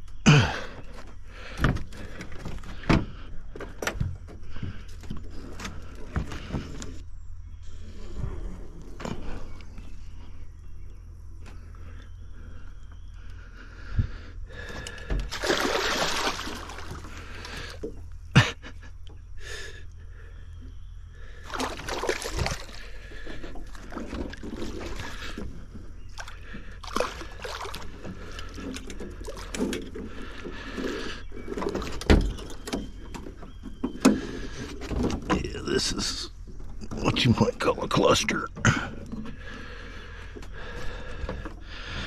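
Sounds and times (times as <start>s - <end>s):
water splashing against boat: 14.6s - 18.0s, 21.3s - 42.0s.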